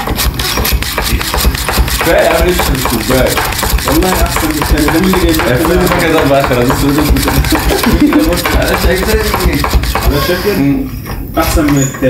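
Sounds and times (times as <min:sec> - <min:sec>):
whisk rattling against glass: 0:00.0 - 0:10.3.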